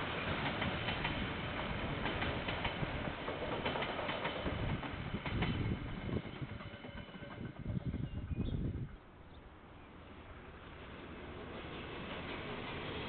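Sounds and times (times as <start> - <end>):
wheels clicking over rail joints: 0.0 - 9.4
train rolling past: 0.0 - 13.0.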